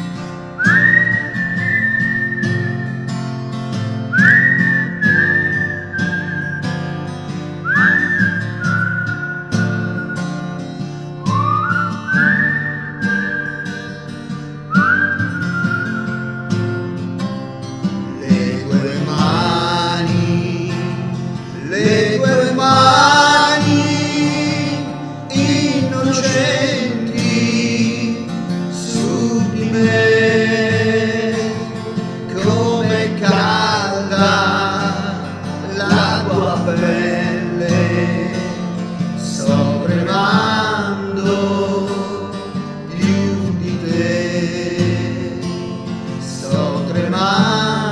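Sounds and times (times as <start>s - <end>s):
acoustic guitar: 0.0s - 47.9s
man singing: 18.1s - 47.9s.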